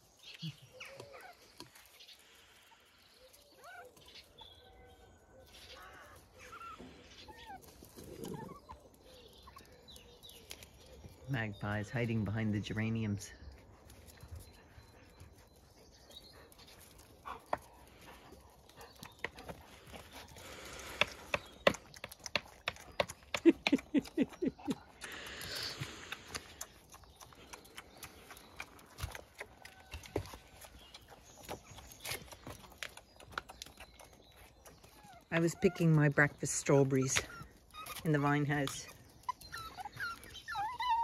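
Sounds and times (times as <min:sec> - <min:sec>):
puppy noises: 0:00.3 - 0:11.5, 0:13.5 - 0:41.0
claws tapping on paving stones: 0:16.8 - 0:35.0.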